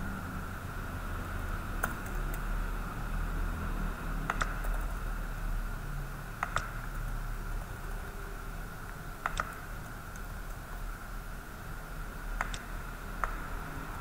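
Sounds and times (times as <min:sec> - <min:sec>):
steady background hum: 0:00.0 - 0:14.0
computer mouse double clicks: 0:04.3 - 0:04.9, 0:09.2 - 0:10.6, 0:12.4 - 0:13.4.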